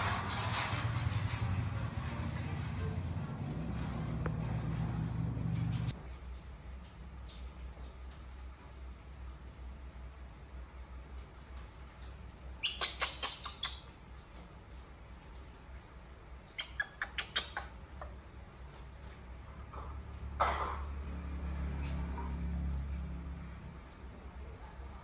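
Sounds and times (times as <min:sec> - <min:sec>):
low steady hum: 0:00.0 - 0:25.0
high-pitched animal chirps: 0:12.6 - 0:13.9, 0:16.5 - 0:17.7.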